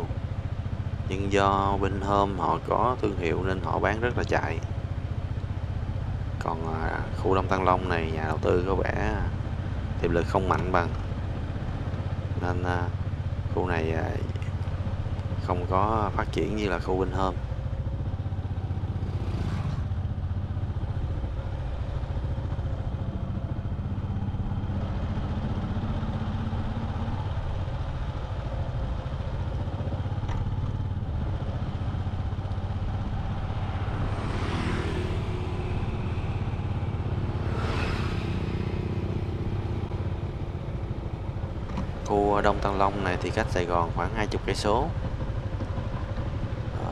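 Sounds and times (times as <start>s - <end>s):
motorbike engine hum: 0.0s - 46.9s
road and wind noise: 0.0s - 46.9s
passing vehicle whoosh: 18.9s - 20.0s, 31.1s - 41.2s.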